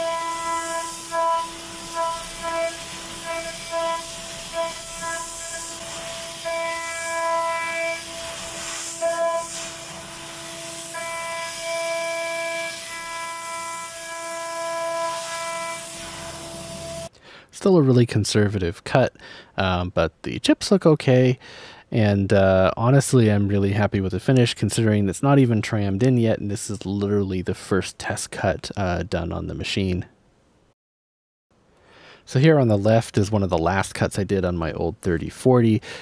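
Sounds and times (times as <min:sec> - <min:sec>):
router spindle whine: 0:00.0 - 0:17.1
steady hiss: 0:00.0 - 0:17.1.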